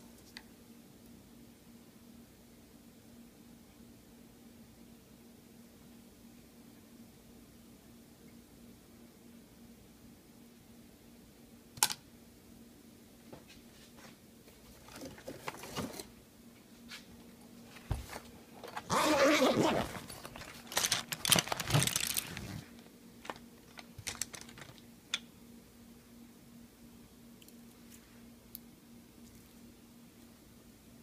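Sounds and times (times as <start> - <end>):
rustling scrape: 17.7 - 22.8.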